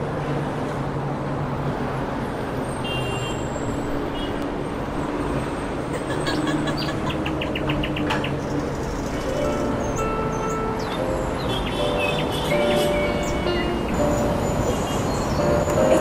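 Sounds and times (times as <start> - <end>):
distant traffic rumble: 0.0 - 16.0
bird chirping: 6.0 - 16.0.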